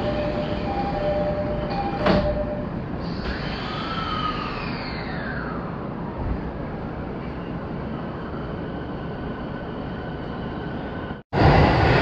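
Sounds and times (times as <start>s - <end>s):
train low rumble: 0.0s - 12.0s.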